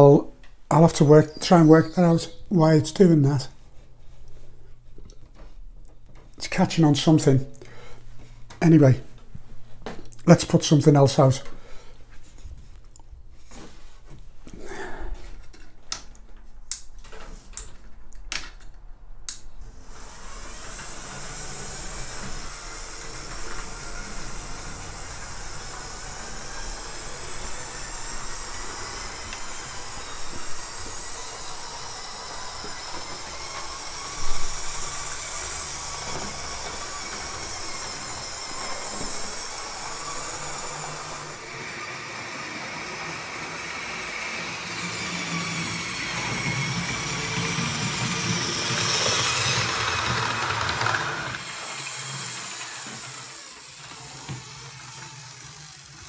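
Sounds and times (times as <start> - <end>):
model locomotive motor whirring: 19.3 - 56.0.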